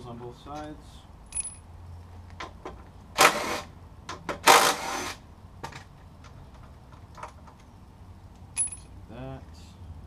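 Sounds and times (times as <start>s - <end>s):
metal tools clicking and clattering: 8.6s - 8.9s.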